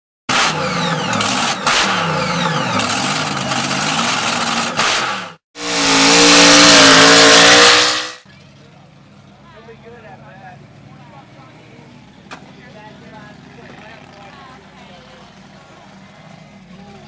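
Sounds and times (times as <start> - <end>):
engine revving: 0.3 - 8.2.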